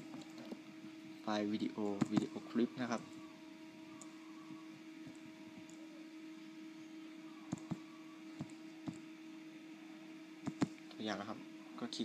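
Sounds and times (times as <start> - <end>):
low electrical hum: 0.0 - 12.0
computer mouse clicking: 2.0 - 2.3, 7.5 - 7.8, 8.4 - 9.0, 10.4 - 10.8.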